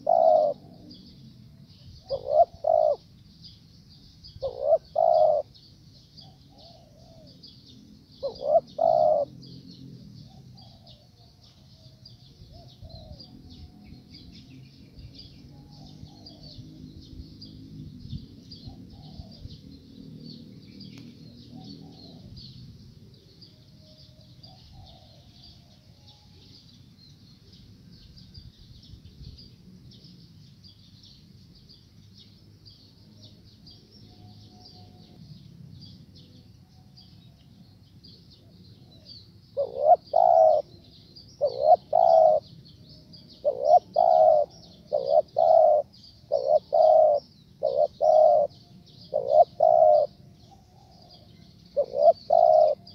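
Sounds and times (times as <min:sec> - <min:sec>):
dove cooing: 0:00.0 - 0:01.0, 0:02.0 - 0:03.1, 0:04.4 - 0:05.6, 0:06.2 - 0:07.4, 0:08.2 - 0:09.6, 0:10.2 - 0:11.9, 0:18.6 - 0:19.6, 0:21.5 - 0:22.6, 0:24.4 - 0:26.0, 0:38.4 - 0:40.8, 0:41.4 - 0:42.5, 0:43.3 - 0:52.9.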